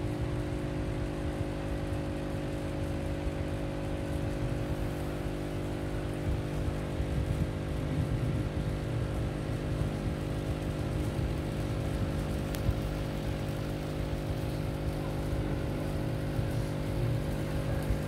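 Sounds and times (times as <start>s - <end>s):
electric hum with buzz: 0.0s - 18.0s
small circulation fan: 0.0s - 18.0s.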